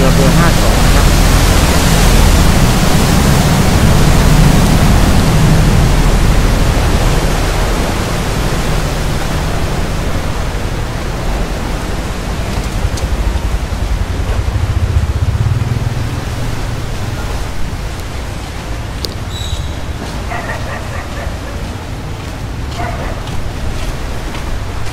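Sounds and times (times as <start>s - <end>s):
boat engine running loud: 0.0s - 18.9s
wake water rushing and splashing: 0.0s - 24.9s.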